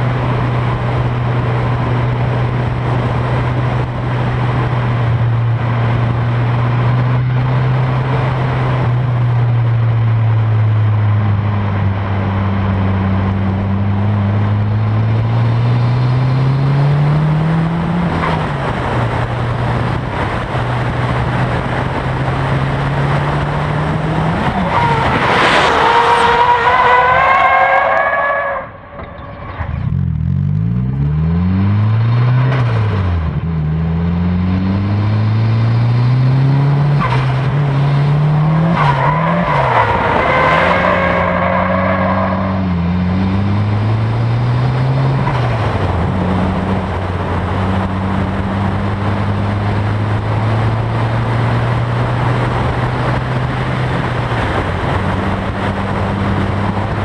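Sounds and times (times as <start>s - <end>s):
car engine revving: 0.0s - 57.0s
tyres squealing: 24.4s - 29.8s.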